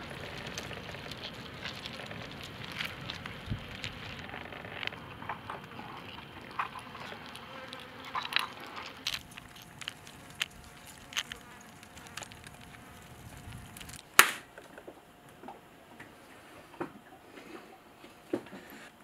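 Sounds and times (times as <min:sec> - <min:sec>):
flies buzzing: 0:00.0 - 0:14.0.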